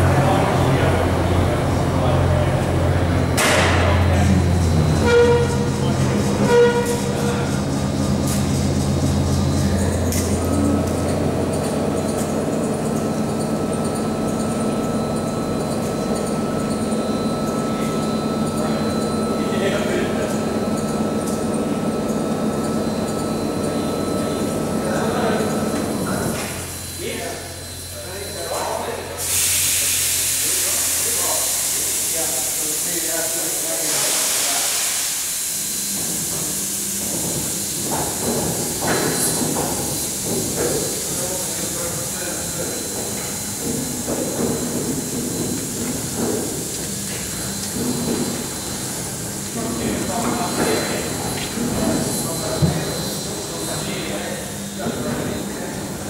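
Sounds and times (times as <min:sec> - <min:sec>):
crane hoist humming: 0:00.0 - 0:56.0
high steady whine: 0:00.0 - 0:56.0
steady hiss: 0:29.2 - 0:35.4.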